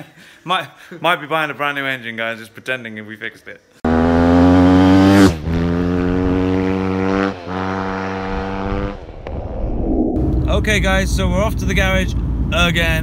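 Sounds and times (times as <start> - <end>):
dirt bike engine revving: 3.8 - 9.3.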